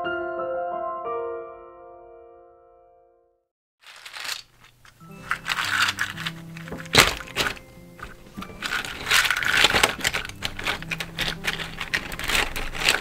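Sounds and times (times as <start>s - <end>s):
net crinkling: 3.8s - 13.0s
walnuts clacking in mesh bag: 3.8s - 13.0s
soft background music: 4.9s - 13.0s.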